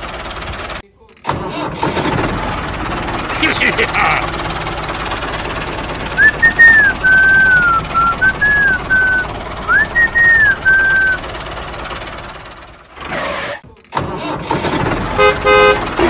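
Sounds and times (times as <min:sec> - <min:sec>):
person whistling a tune: 0:06.1 - 0:11.2.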